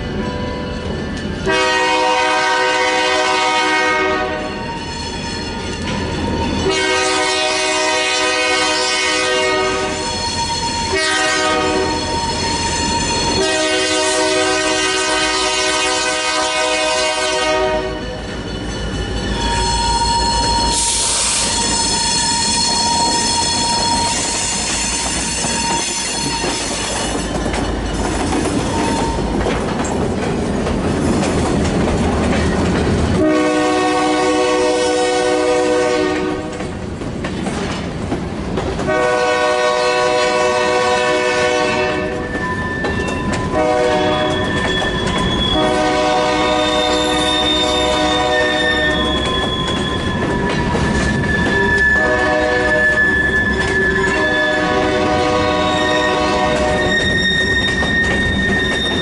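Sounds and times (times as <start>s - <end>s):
locomotive rumbling past: 0.0s - 59.0s
railcar wheel clatter: 0.0s - 59.0s
locomotive air horn blasts: 1.4s - 4.6s, 6.6s - 18.2s, 33.2s - 36.5s, 38.9s - 42.4s, 43.4s - 44.5s, 45.5s - 49.3s, 51.7s - 58.1s.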